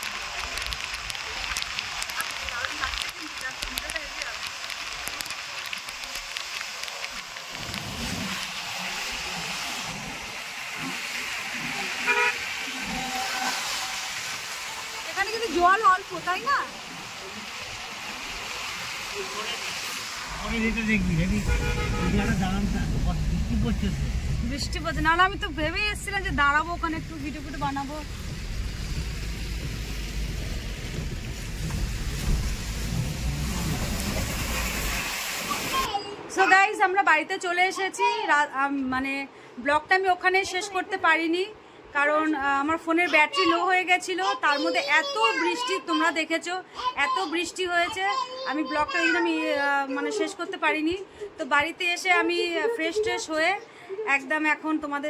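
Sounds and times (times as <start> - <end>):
car tyres on wet road: 0.0 - 36.1
vehicle horn toot: 12.0 - 14.0, 21.3 - 22.6.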